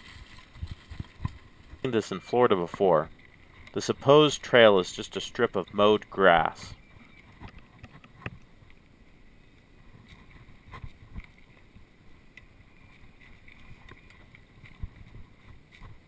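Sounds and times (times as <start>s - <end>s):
wind on microphone: 0.0s - 1.8s, 13.0s - 16.0s.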